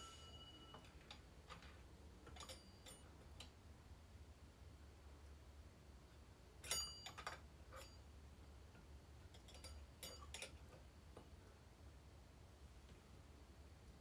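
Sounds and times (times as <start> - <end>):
metal clicks and clinks: 0.1 - 3.5, 6.6 - 8.1, 9.3 - 10.8.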